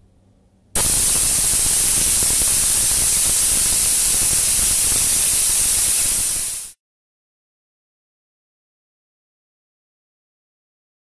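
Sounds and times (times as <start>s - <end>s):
compressed air blow gun hissing: 0.8s - 6.8s
water spraying as mist: 0.8s - 6.8s.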